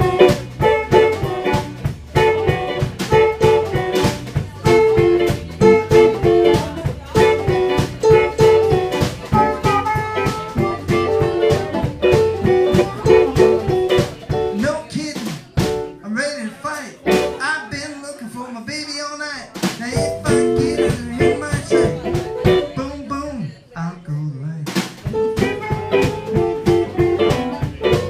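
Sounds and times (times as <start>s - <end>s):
amplified harmonica: 0.0s - 13.6s
electric guitar: 0.0s - 14.6s, 17.0s - 17.4s, 20.0s - 22.8s, 25.0s - 28.0s
steady drum beat: 0.0s - 16.0s, 17.0s - 17.8s, 19.5s - 23.1s, 24.6s - 28.0s.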